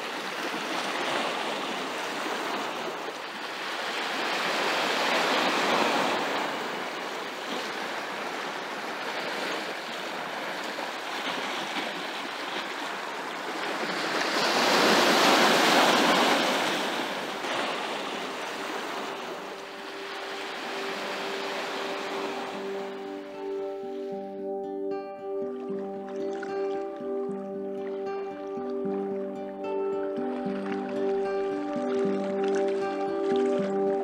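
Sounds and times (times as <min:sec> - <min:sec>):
waves breaking on rocky shore: 0:00.0 - 0:23.8.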